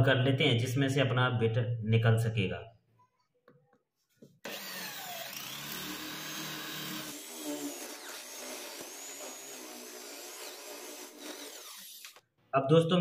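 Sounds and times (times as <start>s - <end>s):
electric drill boring through wood: 4.4s - 12.2s.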